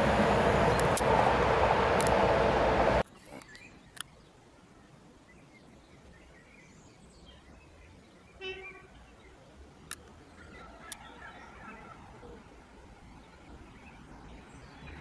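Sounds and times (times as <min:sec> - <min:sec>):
train wheels rolling on rail: 0:00.0 - 0:03.0.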